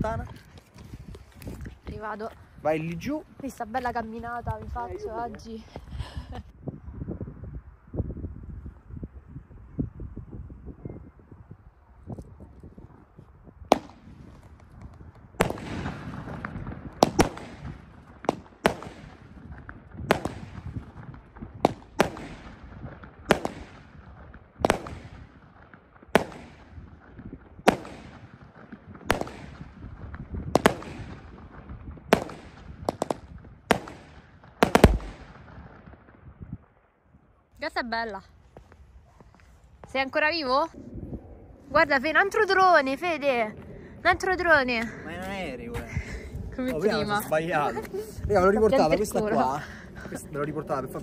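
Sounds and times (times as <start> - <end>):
firework cake bangs with echo: 30.5 - 36.0.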